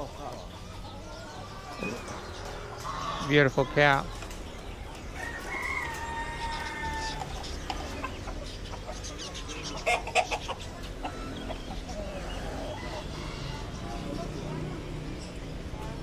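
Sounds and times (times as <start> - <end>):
fowl clucking calls: 1.4 - 3.4, 5.2 - 13.8
rooster crowing: 5.2 - 7.3.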